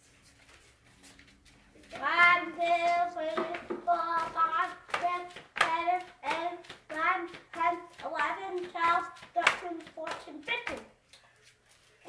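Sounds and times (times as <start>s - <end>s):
feet thumping landing: 1.8s - 10.8s.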